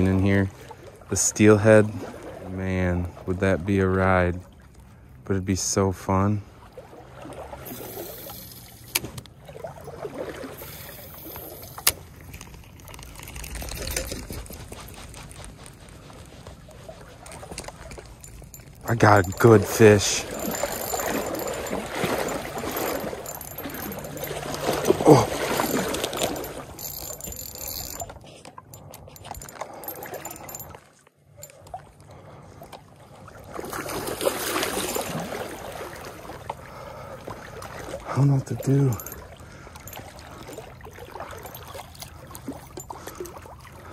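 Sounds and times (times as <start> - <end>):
stream water trickling: 0.0 - 43.9
fishing reel clicking: 7.7 - 9.1, 10.6 - 14.3, 17.5 - 28.2, 28.8 - 30.8
reel being handled: 7.7 - 9.3, 10.6 - 30.8.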